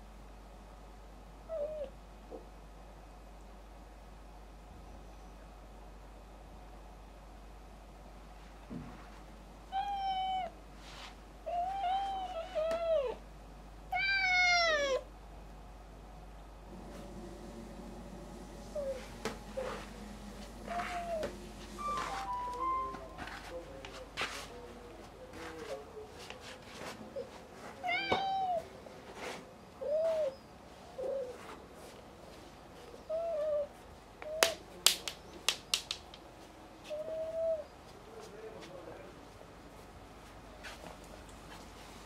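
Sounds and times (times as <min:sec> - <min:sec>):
cat meowing: 0:09.7 - 0:10.5, 0:13.9 - 0:15.1, 0:27.8 - 0:28.6.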